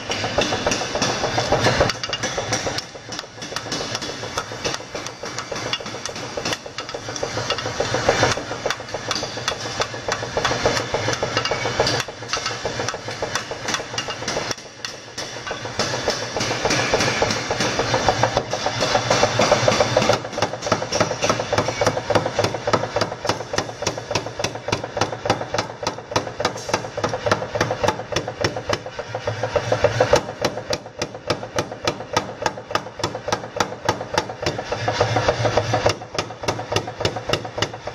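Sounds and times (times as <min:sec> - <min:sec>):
hand hammering on anvil: 0:00.0 - 0:28.8
power hammer striking blade: 0:00.0 - 0:28.9, 0:29.9 - 0:37.9.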